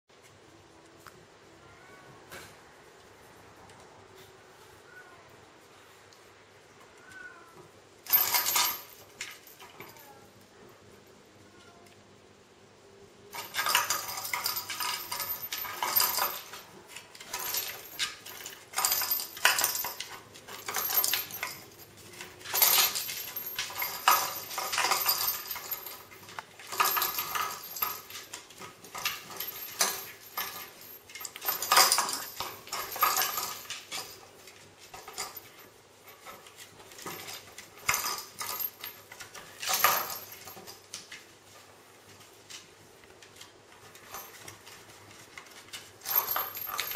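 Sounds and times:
toys clinking and rattling in box: 8.1s - 10.2s, 13.3s - 41.2s, 43.3s - 46.9s.

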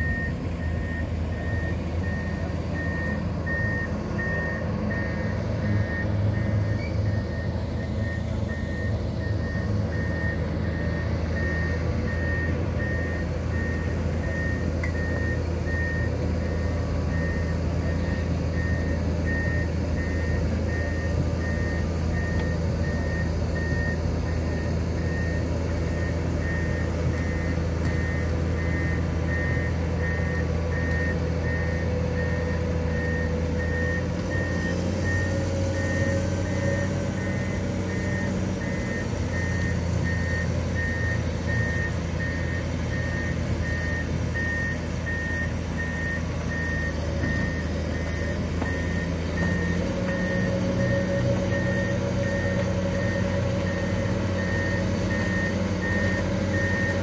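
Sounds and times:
diesel engine running: 0.0s - 57.0s
travel alarm beeping: 0.0s - 57.0s.

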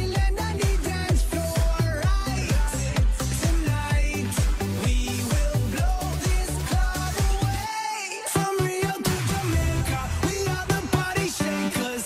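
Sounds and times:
electronic dance music: 0.0s - 12.0s.

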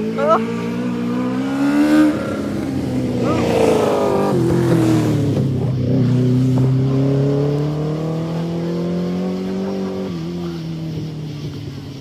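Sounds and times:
engine revving high: 0.0s - 11.6s.

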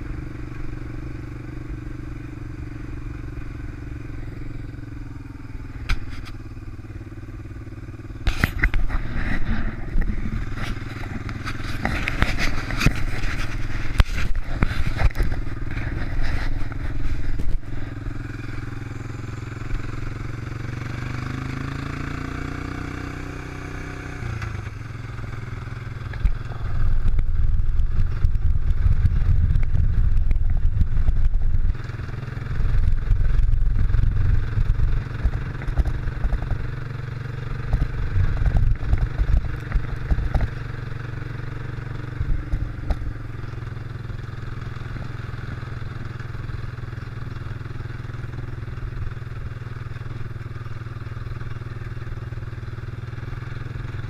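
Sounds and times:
rough low rumble: 0.0s - 20.9s, 24.3s - 45.2s
atv engine running: 0.0s - 54.0s.

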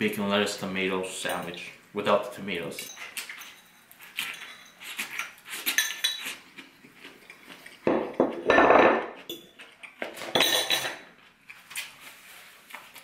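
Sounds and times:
fork clinking and scraping on plate: 2.9s - 6.4s.

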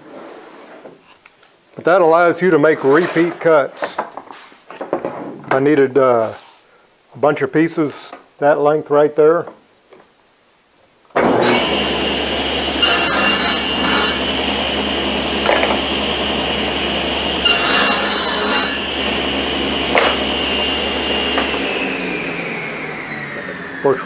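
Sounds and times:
saw cutting plywood: 11.2s - 24.0s
table saw whining: 11.2s - 24.0s.

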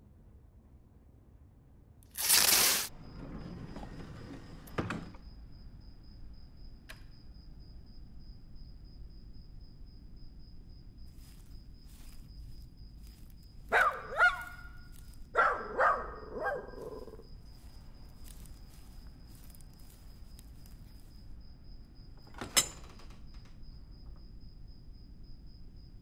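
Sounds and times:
dog barking: 13.7s - 17.2s.

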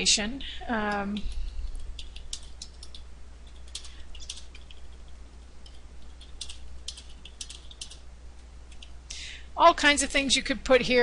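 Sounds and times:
low steady hum: 0.0s - 11.0s
keyboard typing: 1.2s - 8.1s, 8.7s - 9.0s.

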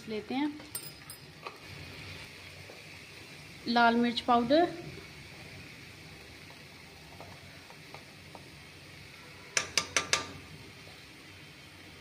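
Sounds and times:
faint sizzle of food frying: 0.0s - 12.0s
utensil tapping a steel pan: 9.6s - 10.4s.

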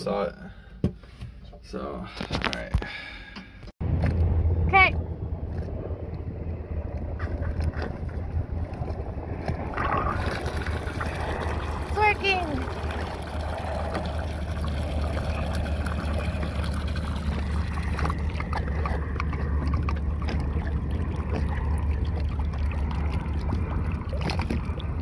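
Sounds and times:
steady low rumble: 3.8s - 25.0s
water pouring and splashing: 8.6s - 25.0s.

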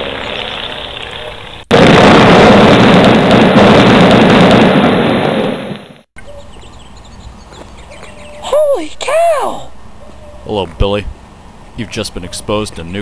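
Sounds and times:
explosion rumble: 1.7s - 6.1s.

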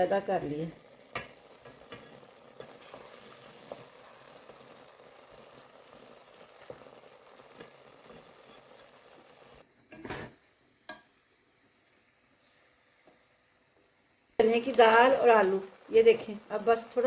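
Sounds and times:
pot sizzling and bubbling: 0.0s - 17.0s.

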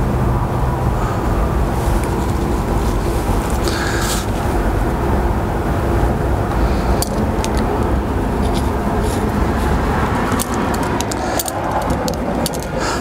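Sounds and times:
steady low rumble: 0.0s - 13.0s
light metallic clicks and taps: 10.2s - 12.8s.

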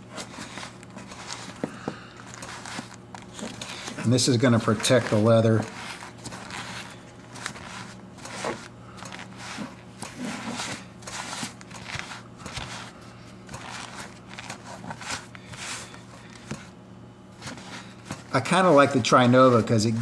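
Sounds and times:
low steady hum: 0.0s - 20.0s
foam pad rubbing leather: 2.4s - 12.9s.

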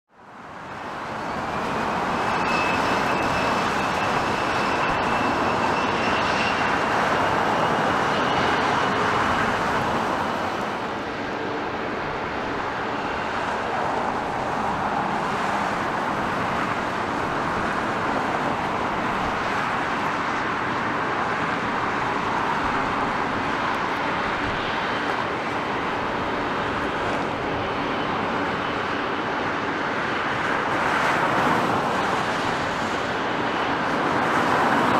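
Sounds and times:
jet engines at taxi power: 0.1s - 34.9s
faint high engine whine: 0.2s - 34.9s.

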